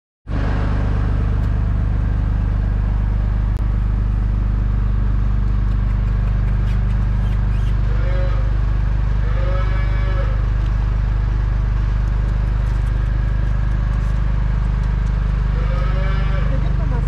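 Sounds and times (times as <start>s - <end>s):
engine idling: 0.3s - 17.0s.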